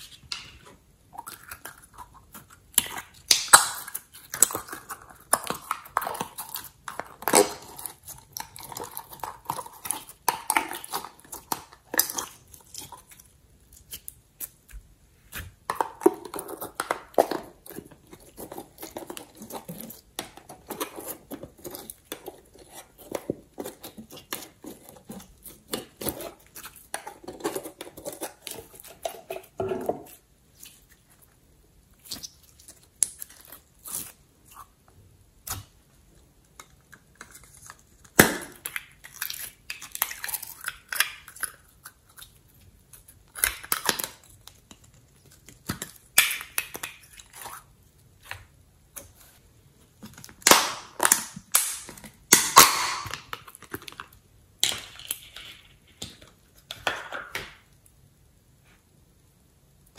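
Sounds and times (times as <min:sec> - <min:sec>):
plastic containers clicking and crinkling: 0:49.9 - 0:57.7.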